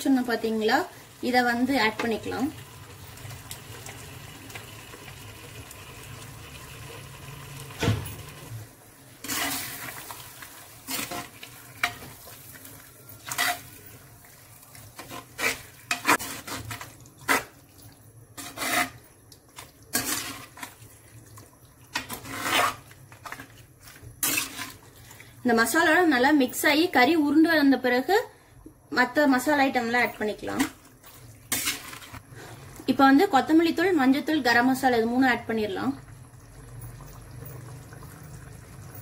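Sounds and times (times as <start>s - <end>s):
meat sizzling: 0.7s - 17.7s
thump: 7.8s - 8.2s
ladle scraping clay pot: 9.2s - 10.0s, 15.0s - 17.6s, 18.4s - 19.1s, 19.9s - 20.8s, 21.9s - 24.9s, 31.5s - 32.5s.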